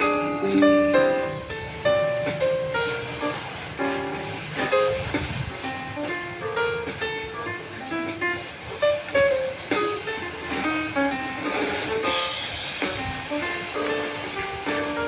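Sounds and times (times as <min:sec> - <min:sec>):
plucked guitar melody: 0:00.0 - 0:11.3.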